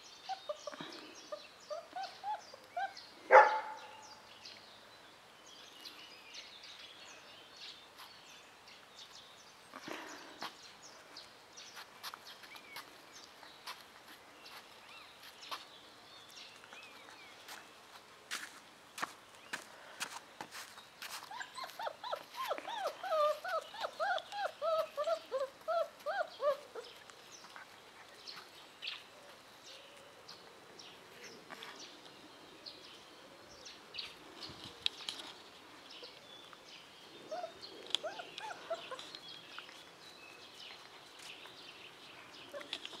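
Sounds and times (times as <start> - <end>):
puppy whining and yelping: 0.2 - 3.0, 21.2 - 27.0, 37.3 - 39.2, 42.5 - 43.0.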